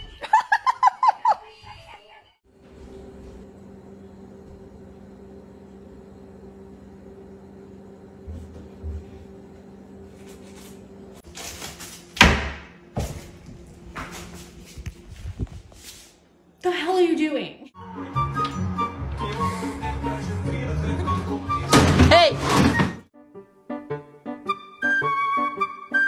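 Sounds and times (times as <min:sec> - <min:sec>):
steady low hum: 0:02.5 - 0:16.6
cabinet door banging shut: 0:12.2 - 0:12.7.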